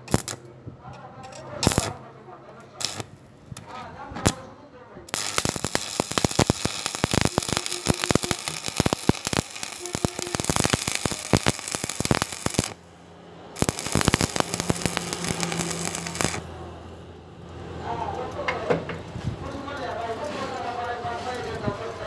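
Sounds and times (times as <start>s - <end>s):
welding arc crackling: 0.0s - 0.4s, 1.6s - 2.0s, 2.8s - 4.4s, 5.1s - 16.6s.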